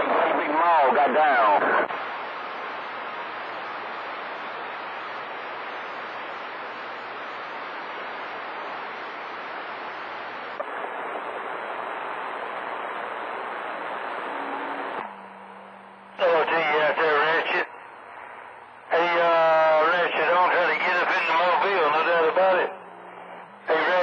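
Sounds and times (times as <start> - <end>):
radio static hiss: 0.0 - 24.0
small radio click: 10.6 - 10.8, 14.9 - 15.2.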